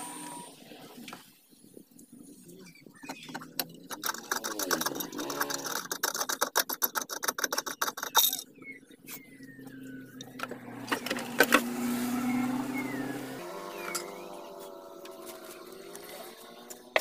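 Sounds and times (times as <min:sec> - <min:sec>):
wing nut clicking and rattling: 0:03.4 - 0:08.5.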